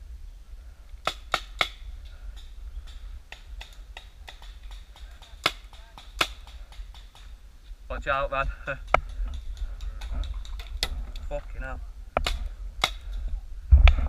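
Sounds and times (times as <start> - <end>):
paintball guns firing: 3.4 - 7.3.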